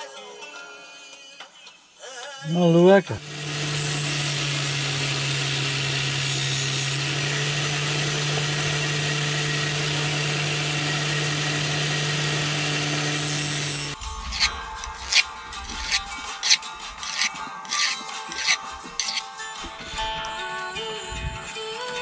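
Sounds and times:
angle grinder sanding wood: 3.2 - 19.8.

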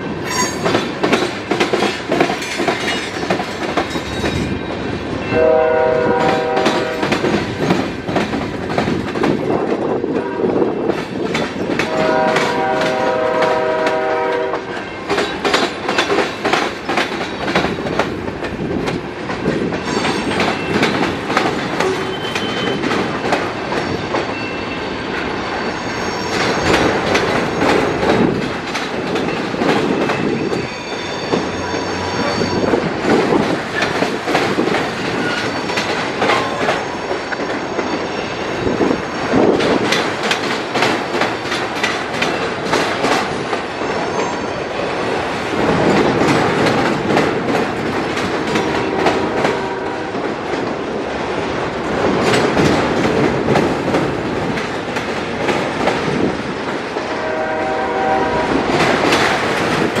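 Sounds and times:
train wheels rumbling on rails: 0.0 - 60.0
high-pitched wheel squeals: 0.3 - 0.6, 21.8 - 22.8, 25.6 - 26.9, 30.4 - 32.8.

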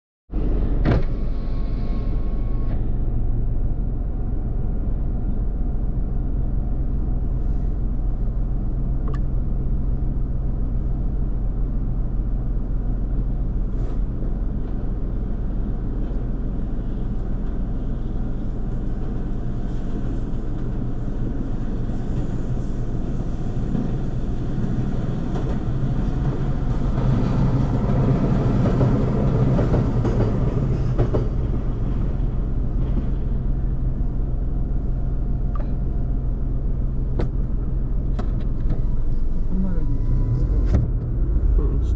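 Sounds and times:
car engine idling hum: 0.3 - 21.6, 31.3 - 41.9
electric train passing: 16.9 - 36.7.

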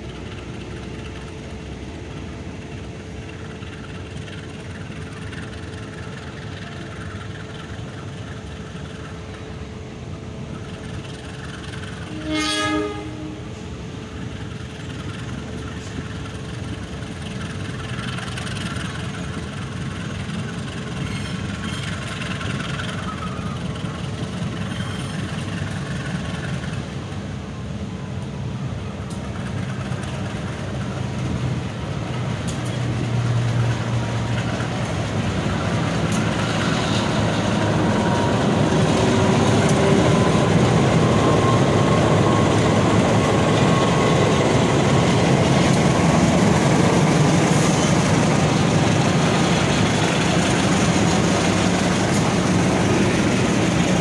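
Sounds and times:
locomotive engine rumble: 0.0 - 54.0
locomotive horn blast: 12.1 - 13.5
wheel squeal: 20.6 - 26.6, 36.1 - 45.3.

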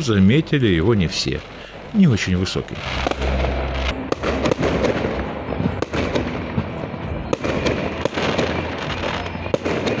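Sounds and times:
fireworks crackling: 1.0 - 10.0
fireworks sharp bangs: 2.7 - 10.0.

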